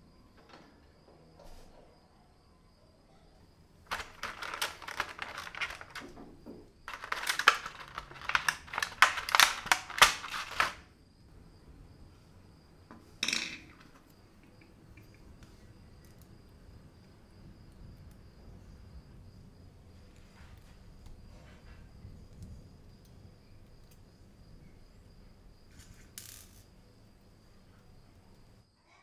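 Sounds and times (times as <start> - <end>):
plastic packaging crackling: 3.8 - 6.2, 6.8 - 10.9.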